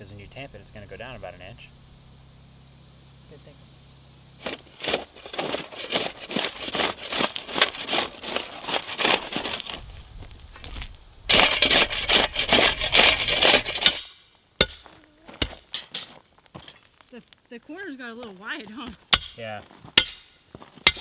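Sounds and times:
shovel scraping gravelly soil: 4.4 - 16.9.

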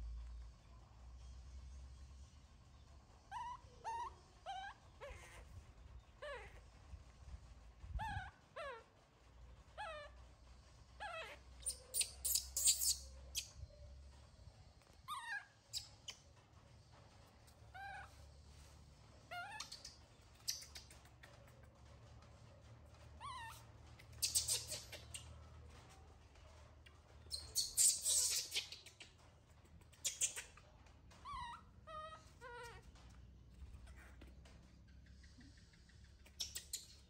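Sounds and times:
baby monkey whimpering calls: 3.2 - 6.6, 7.9 - 8.9, 9.7 - 10.2, 11.0 - 13.6, 15.1 - 16.2, 17.7 - 18.2, 19.3 - 20.8, 23.2 - 25.3, 27.3 - 29.2, 29.8 - 34.3.

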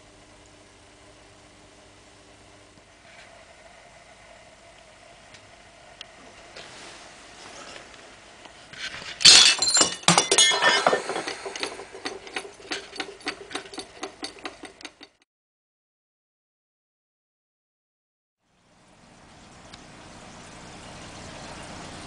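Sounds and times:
shards clinking: 8.8 - 15.2
porcelain jug smashing: 9.0 - 14.7.

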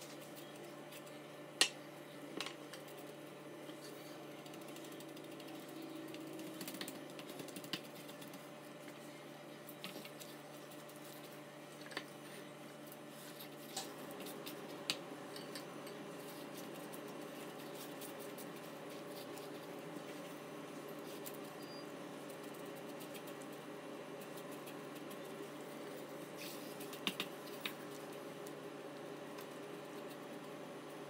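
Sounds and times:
steady low hum: 0.0 - 31.0
faint clicks and taps: 4.4 - 9.0, 26.8 - 30.2.

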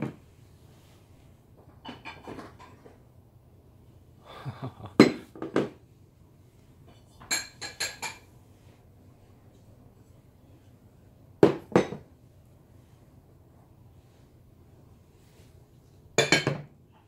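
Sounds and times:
dishes clinking on wooden table: 1.8 - 2.9, 7.2 - 8.3, 11.4 - 12.0, 16.2 - 16.7.

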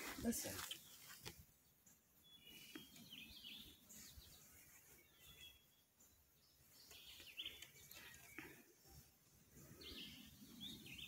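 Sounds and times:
faint bird chirps: 2.2 - 11.0.

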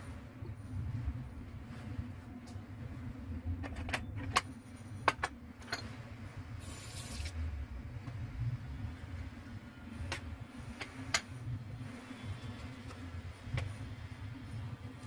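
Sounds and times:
steady low hum: 0.0 - 15.0
brief hiss: 6.6 - 7.4.

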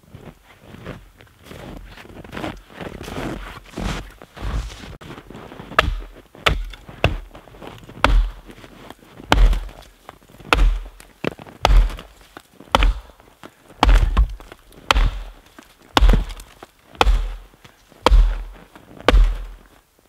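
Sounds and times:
axe chopping log: 5.8 - 7.4, 8.0 - 8.5, 9.2 - 9.9, 10.5 - 13.2, 13.8 - 17.4, 18.0 - 19.6.

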